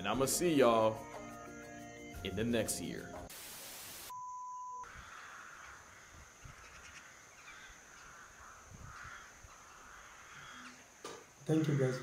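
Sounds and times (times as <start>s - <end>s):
steady outdoor hiss: 2.8s - 4.1s, 4.9s - 12.0s.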